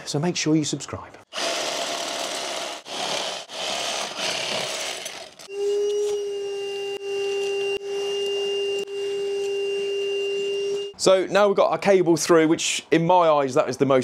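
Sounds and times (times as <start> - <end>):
power drill boring into brick: 1.3 - 5.5
vacuum cleaner whine: 5.5 - 10.9.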